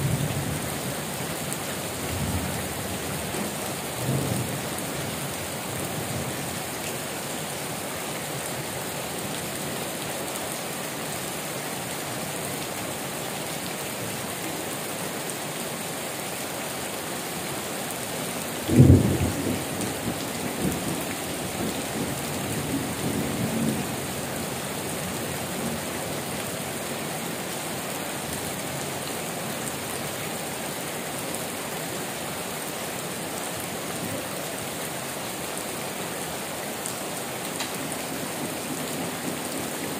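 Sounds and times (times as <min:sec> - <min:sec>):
heavy rain pouring: 0:00.0 - 0:39.9
thunderclap and rumbling thunder: 0:18.7 - 0:23.8.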